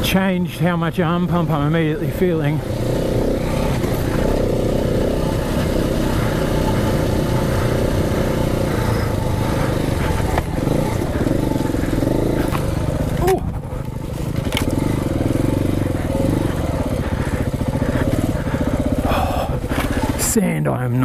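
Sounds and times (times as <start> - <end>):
motorcycle engine under throttle: 0.0 - 21.0.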